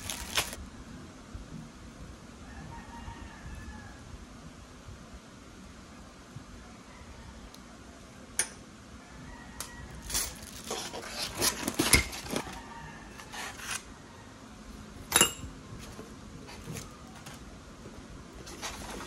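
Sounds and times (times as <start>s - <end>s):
plastic wrap rustling: 0.0s - 0.6s, 10.0s - 12.6s.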